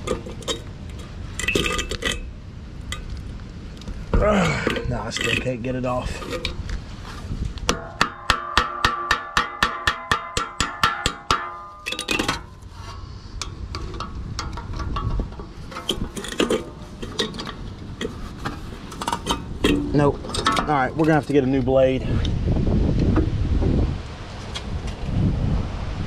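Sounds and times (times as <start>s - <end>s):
pliers scraping and clinking: 0.0s - 2.3s, 11.0s - 21.4s
fan blade ringing: 4.1s - 6.7s, 7.6s - 22.2s
pliers tapping on metal hub: 7.6s - 12.6s, 13.4s - 18.1s.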